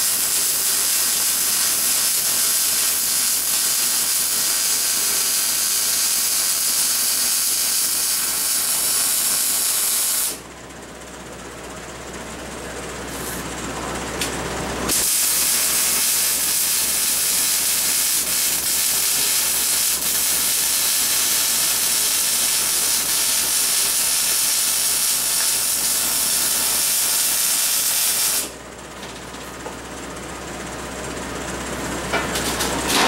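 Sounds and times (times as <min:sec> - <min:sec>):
welding arc hissing: 0:00.0 - 0:10.4, 0:14.9 - 0:28.6.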